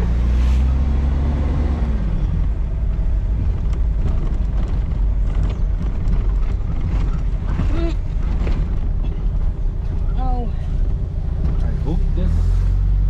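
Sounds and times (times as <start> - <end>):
engine and road rumble: 0.0 - 13.0
knocks and rattles over bumps: 2.6 - 10.2.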